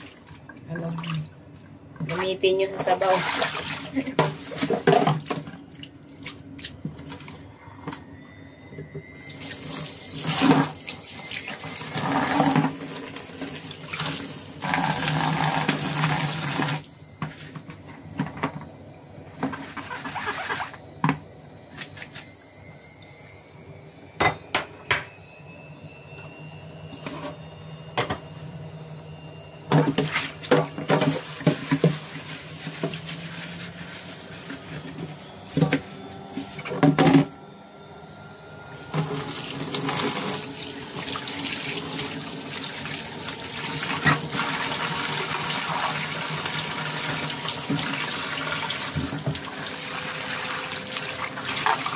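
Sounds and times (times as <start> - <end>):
utensils clattering against sink: 2.1 - 5.6, 8.8 - 17.6, 29.7 - 33.4, 38.9 - 51.9
tap running into sink: 47.5 - 49.5.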